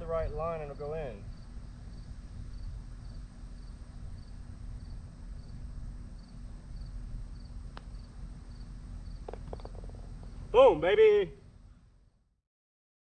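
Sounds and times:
crickets chirping: 0.0 - 11.7
low background rumble: 0.0 - 12.3
putter striking golf ball: 7.7 - 8.0, 9.2 - 10.2.

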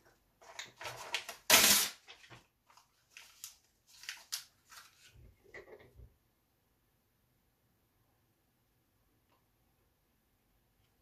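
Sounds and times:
paper tearing: 0.8 - 2.3.

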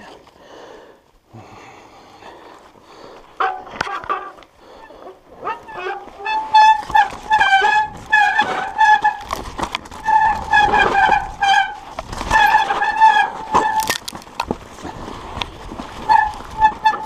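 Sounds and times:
bike disc brakes squealing: 3.4 - 14.0, 15.9 - 17.0
bike knocking over bumps: 5.4 - 17.0.

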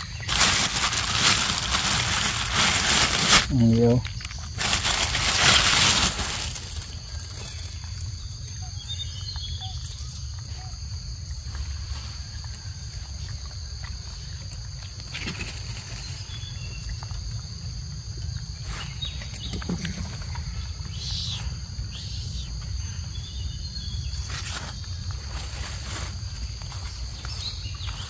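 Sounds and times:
loud rustling: 0.0 - 3.5, 4.6 - 7.3.

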